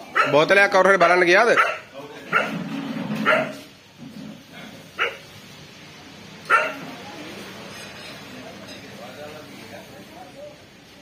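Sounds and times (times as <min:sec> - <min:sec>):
dog barking: 0:00.1 - 0:02.6, 0:03.2 - 0:03.7, 0:05.0 - 0:05.3, 0:06.5 - 0:06.9.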